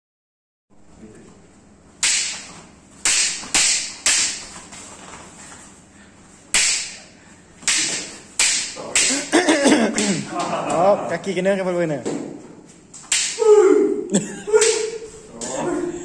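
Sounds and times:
wooden swords clacking: 0:02.0 - 0:05.2, 0:06.5 - 0:10.8, 0:12.0 - 0:13.6, 0:14.5 - 0:15.9.

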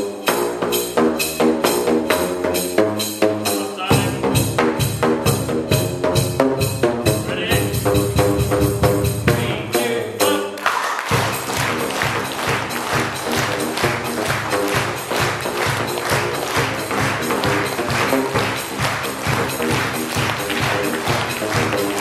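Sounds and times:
pipe drum beat: 0:03.9 - 0:09.8, 0:10.6 - 0:22.0.

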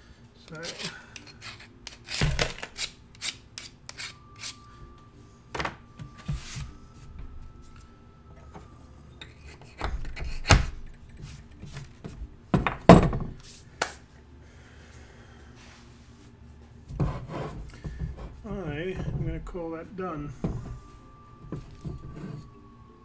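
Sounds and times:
knocks and rubs of handling: 0:16.8 - 0:19.6.

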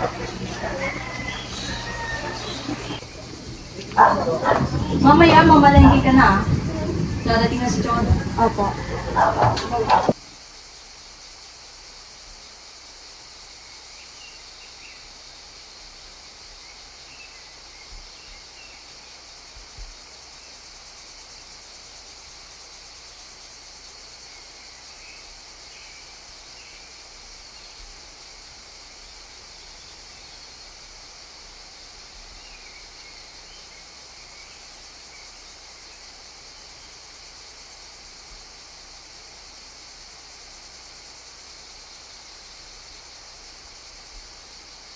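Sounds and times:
high-pitched insect trilling: 0:10.1 - 0:44.9.

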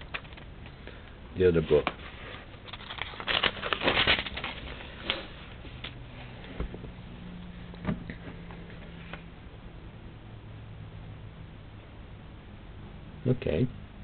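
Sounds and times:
book pages turning: 0:01.7 - 0:06.0.

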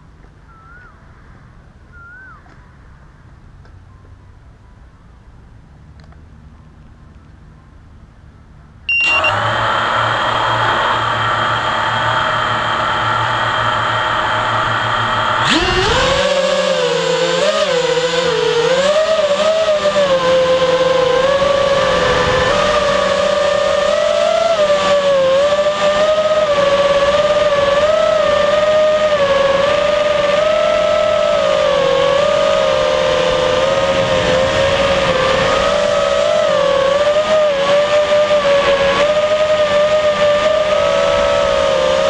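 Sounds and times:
quadcopter motors whining: 0:08.9 - 0:42.0.

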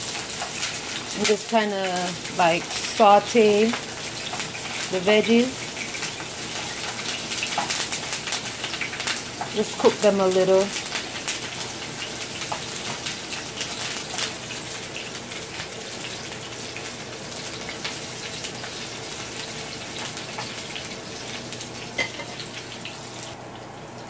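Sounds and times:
vegetables sizzling in oil: 0:00.0 - 0:24.0.

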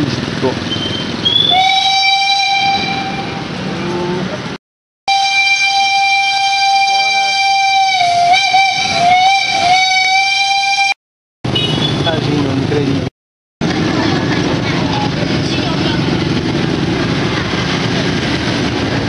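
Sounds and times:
steam locomotive whistle: 0:01.2 - 0:03.5, 0:05.1 - 0:11.0.

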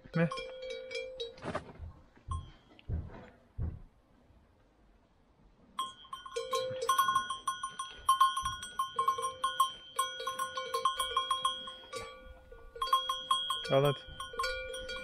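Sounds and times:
cow bell clanking: 0:00.0 - 0:01.4, 0:02.3 - 0:02.6, 0:05.8 - 0:15.0.

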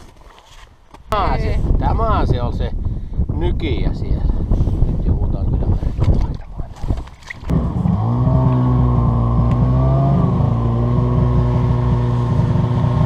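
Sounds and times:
snowmobile engine: 0:07.5 - 0:13.0.

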